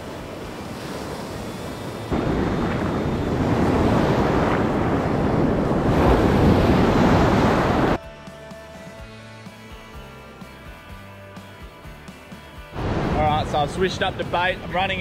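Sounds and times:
ocean surf breaking: 0.0 - 8.0, 12.8 - 15.0
wind on microphone: 0.0 - 8.0.

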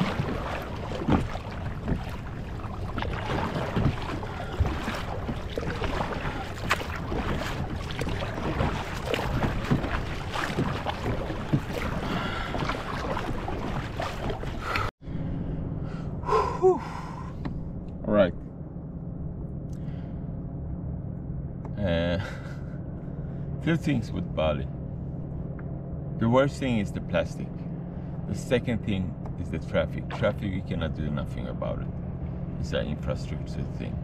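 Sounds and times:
water splashing around a kayak: 0.0 - 14.9, 28.3 - 31.8
wind buffeting microphone: 0.0 - 14.9.

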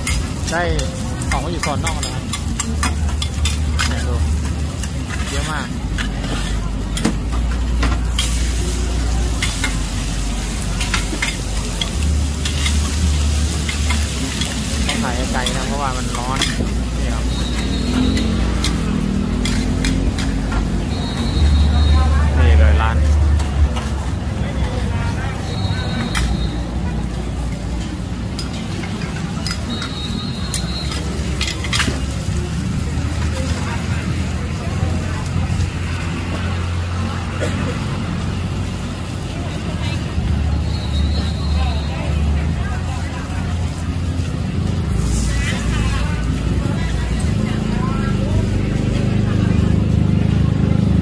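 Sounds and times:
metal spatulas scraping pan: 0.0 - 10.0, 10.8 - 20.6
batter sizzling on griddle: 0.0 - 21.9, 27.0 - 50.0.

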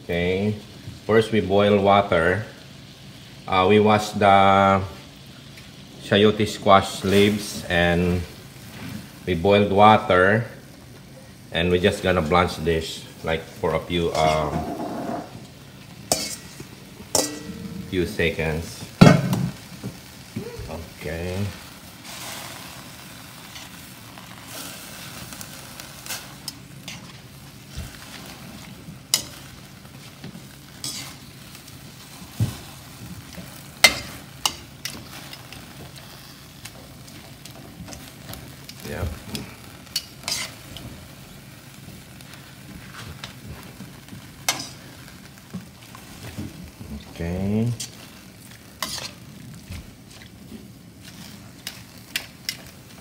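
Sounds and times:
water boiling and bubbling: 10.3 - 53.0
metal tongs clinking on pan: 16.1 - 17.6, 29.1 - 29.5, 33.8 - 35.6, 39.9 - 40.5, 44.5 - 44.8.

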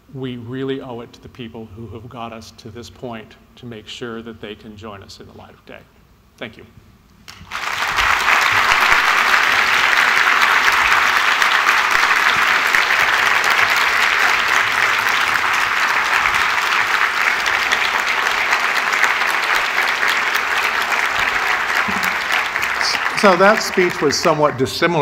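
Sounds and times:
audience applauding: 7.3 - 25.0.

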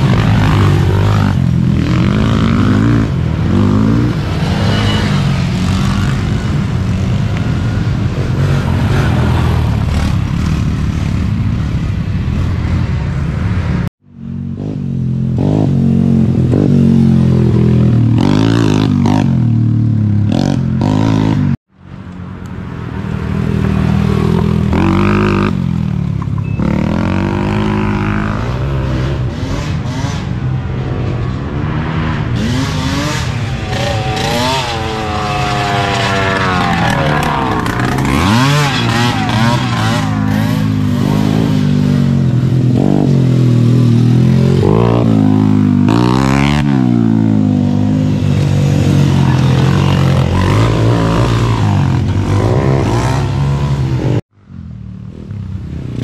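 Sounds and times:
quad engines revving: 0.0 - 11.4, 23.4 - 54.2.

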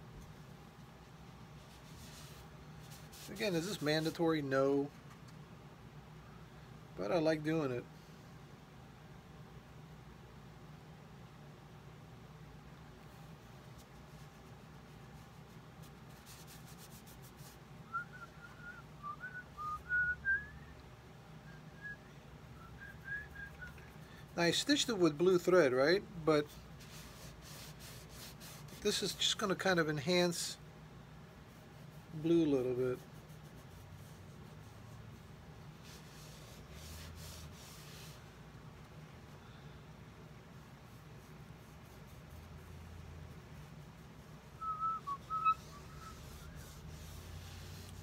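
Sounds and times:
cloth rubbing leather sole: 1.6 - 3.9, 15.8 - 17.6, 26.7 - 29.0, 31.7 - 38.3, 40.6 - 48.0
person whistling a tune: 17.9 - 20.7, 22.6 - 23.9, 44.6 - 46.2.

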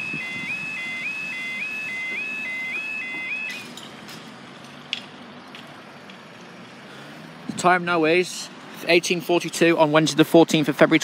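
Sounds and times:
level crossing alarm yelp: 0.0 - 3.7.

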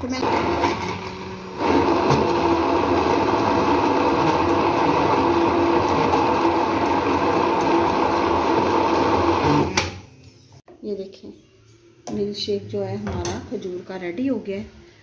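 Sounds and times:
mixer grinder motor running: 0.0 - 9.8.

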